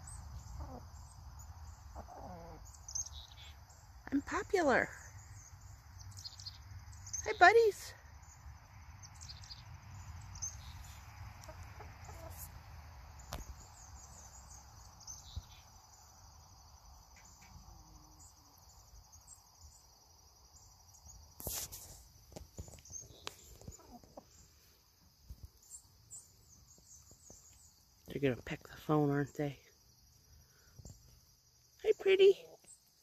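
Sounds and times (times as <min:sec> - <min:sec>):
insects chirring: 0:00.0 - 0:33.0
chickens clucking: 0:01.8 - 0:02.7, 0:10.8 - 0:12.7, 0:23.2 - 0:24.5.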